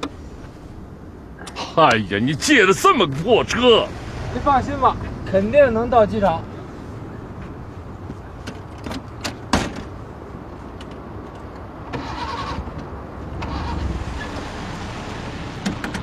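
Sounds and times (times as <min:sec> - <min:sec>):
low rumbling: 0:00.0 - 0:09.2
engine cranking: 0:12.0 - 0:12.8, 0:13.4 - 0:14.4.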